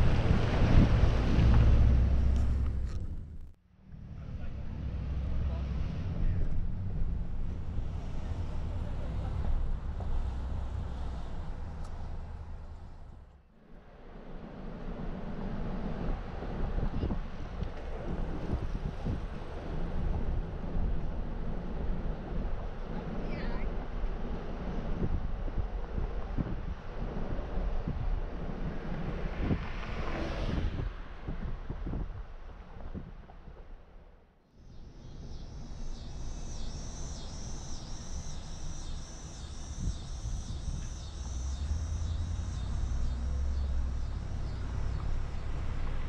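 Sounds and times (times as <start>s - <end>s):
wind buffeting microphone: 0.0s - 3.5s, 14.0s - 34.0s, 34.8s - 46.0s
car road rumble: 0.0s - 46.0s.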